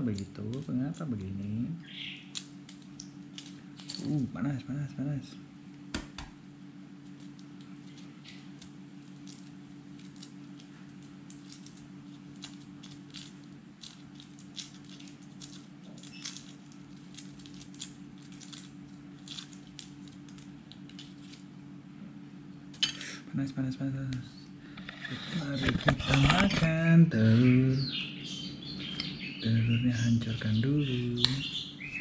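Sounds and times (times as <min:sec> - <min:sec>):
steady low hum: 0:00.0 - 0:32.0
egg shell cracking: 0:02.2 - 0:04.0, 0:07.1 - 0:21.4.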